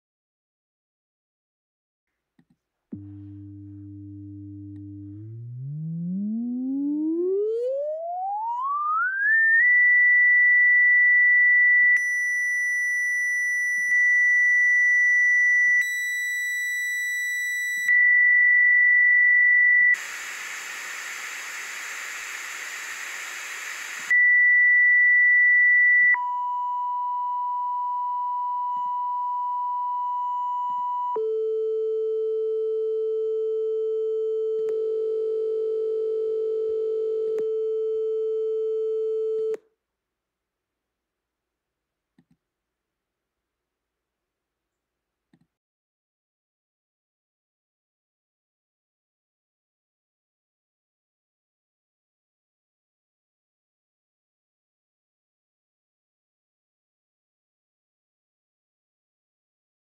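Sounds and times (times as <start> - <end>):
steady noise hiss: 20.0 - 24.1.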